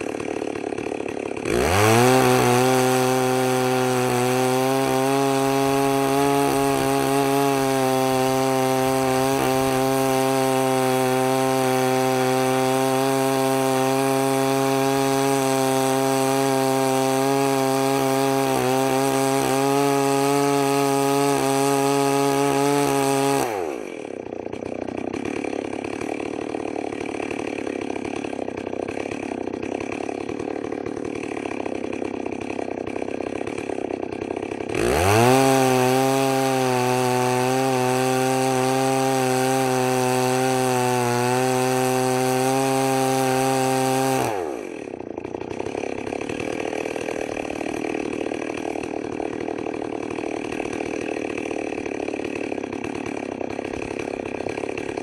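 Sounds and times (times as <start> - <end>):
chainsaw cutting through wood: 0.0 - 55.0
chainsaw idling: 0.0 - 55.0.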